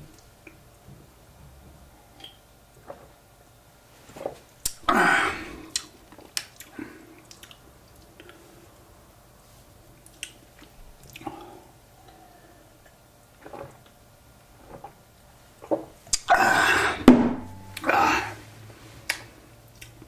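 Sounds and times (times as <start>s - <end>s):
person swallowing: 16.1s - 18.4s
breathy exhalations: 16.3s - 17.1s, 17.8s - 18.5s.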